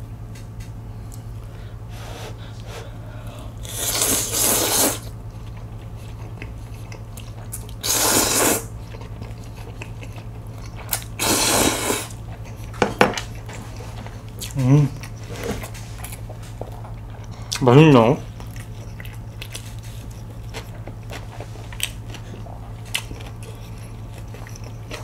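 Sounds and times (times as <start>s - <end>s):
steady low hum: 0.0s - 25.0s
noodles slurped: 3.6s - 5.1s, 7.7s - 9.8s, 10.8s - 12.2s.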